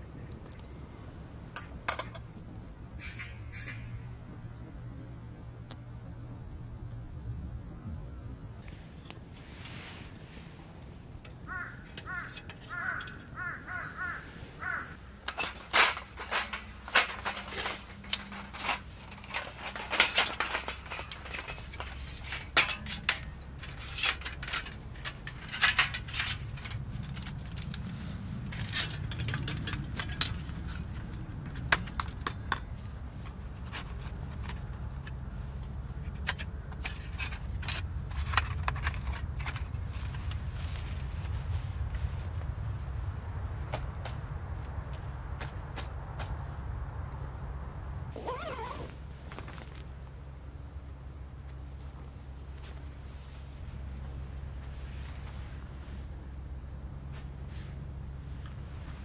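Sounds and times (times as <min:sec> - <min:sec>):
low steady rumble: 0:00.0 - 0:59.0
metal plates clinking: 0:15.3 - 0:27.6.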